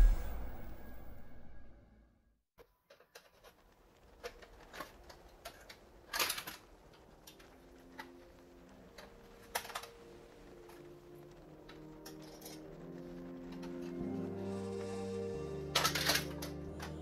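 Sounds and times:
plastic parts clicking and tapping: 2.6 - 8.2, 8.9 - 10.0, 15.7 - 17.0.

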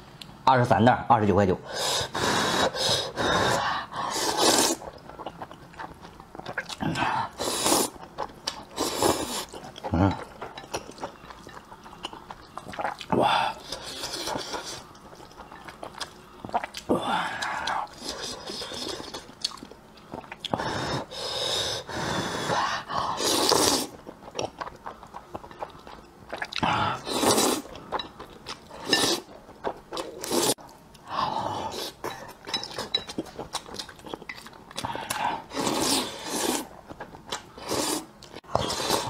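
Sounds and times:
person slurping noodles: 1.7 - 4.8, 6.8 - 8.0, 8.7 - 10.1, 20.5 - 24.0, 26.6 - 27.7, 30.1 - 30.6, 35.2 - 36.7, 37.6 - 39.0
person chewing: 4.1 - 21.1, 23.2 - 31.0, 31.7 - 39.0.

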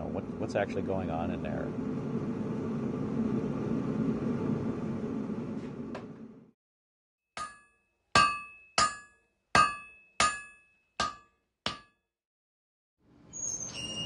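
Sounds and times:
hammer striking anvil: 7.4 - 12.0.

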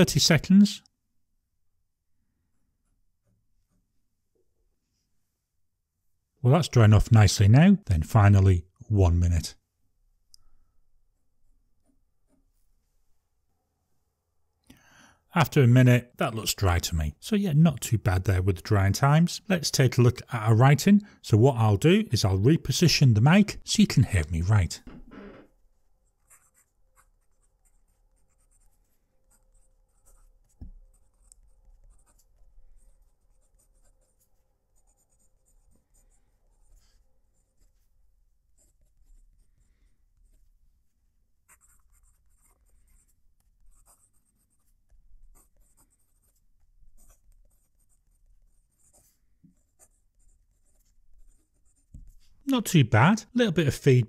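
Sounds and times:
fountain pen scratching on paper: 26.0 - 40.5, 41.4 - 52.2.

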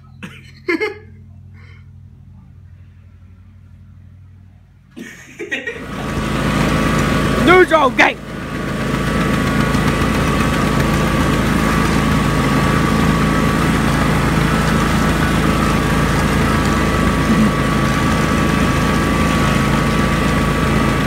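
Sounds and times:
steady high whine: 0.0 - 21.0
lawn tractor engine running: 4.9 - 21.0.

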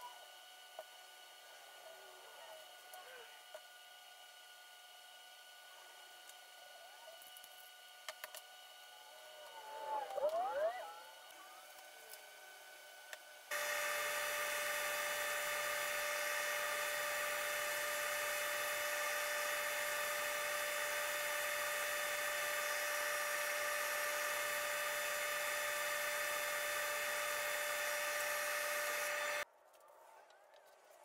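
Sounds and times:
belt sander running: 11.1 - 29.4
dust hose drawing air: 13.5 - 29.4.

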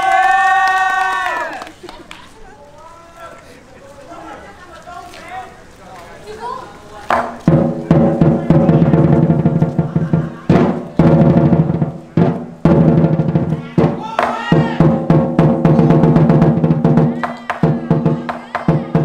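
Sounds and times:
large drum beaten with sticks: 7.1 - 19.0.

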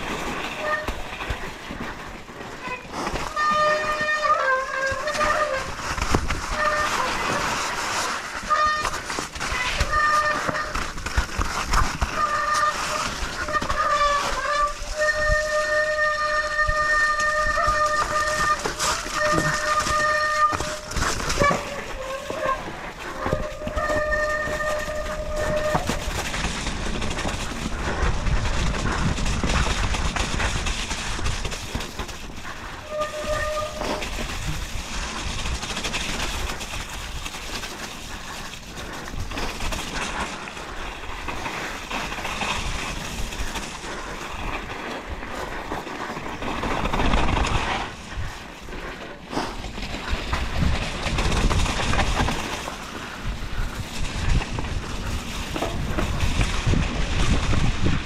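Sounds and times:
bike clattering over rough ground: 0.0 - 58.0
bike brakes squealing: 2.6 - 5.9, 6.5 - 10.9, 12.0 - 27.3, 32.8 - 34.6
wind on microphone: 2.7 - 58.0.

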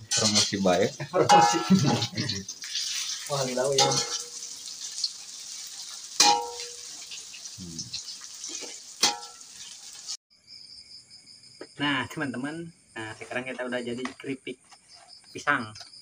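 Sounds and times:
spatula clanging on wok: 0.0 - 0.6, 1.2 - 5.0, 5.8 - 7.2, 8.5 - 9.8
deep-frying sizzle: 0.0 - 10.2.

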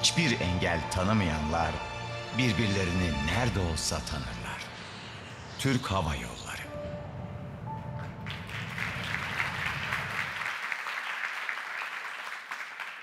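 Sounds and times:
film music: 0.0 - 10.7
audience applauding: 8.0 - 13.0.

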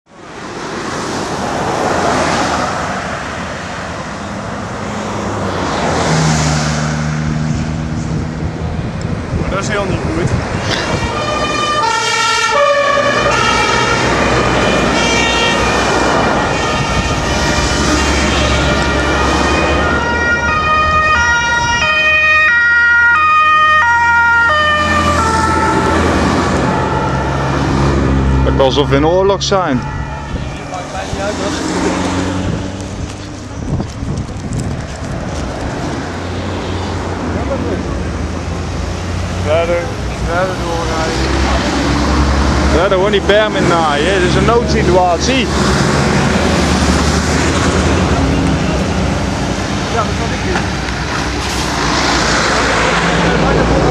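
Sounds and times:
low rumble of traffic: 0.1 - 53.9
lorry passing: 0.2 - 53.9
vehicle passing: 0.2 - 53.9
two-tone emergency siren: 10.8 - 31.4.

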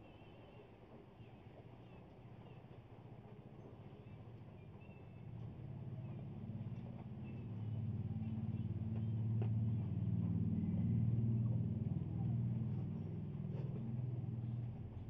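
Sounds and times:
motor vehicle engine rumble: 3.2 - 15.0.

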